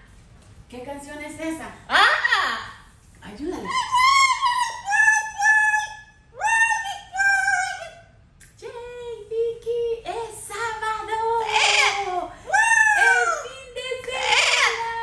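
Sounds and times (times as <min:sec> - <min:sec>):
parrot singing: 0:03.6 - 0:08.2, 0:10.5 - 0:15.0.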